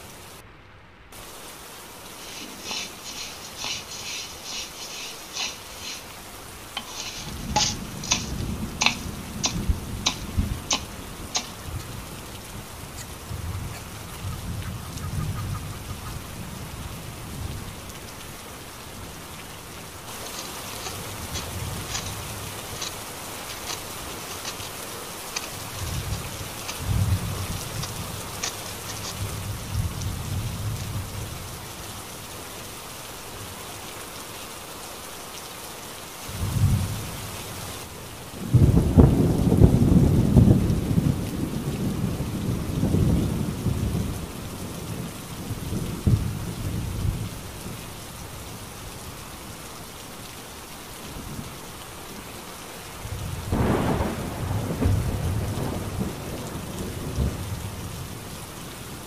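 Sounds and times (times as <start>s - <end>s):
steady rain: 0.0s - 59.0s
thunder rumbling: 1.2s - 19.2s, 20.1s - 32.1s, 36.2s - 47.9s, 53.0s - 58.2s.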